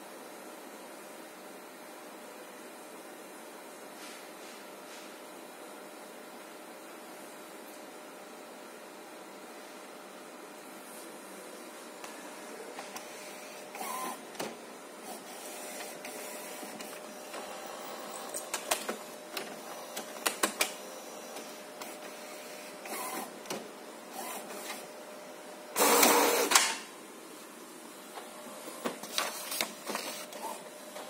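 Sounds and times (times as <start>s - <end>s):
loud printer whir: 8.9s - 26.9s, 28.0s - 31.0s
printer carriage whirring: 8.9s - 27.0s, 27.9s - 31.0s.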